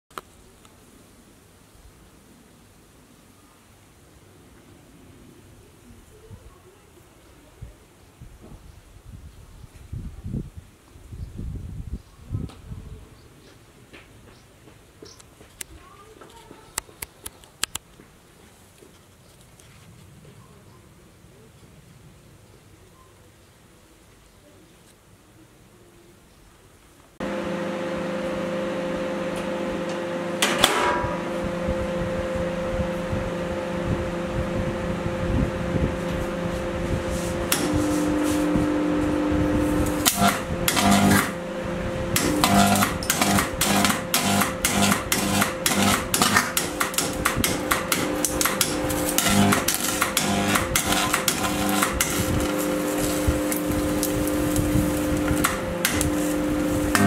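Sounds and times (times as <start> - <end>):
microwave oven humming: 27.2 - 57.0
electrical crackling and snapping: 39.6 - 41.4, 42.2 - 57.0.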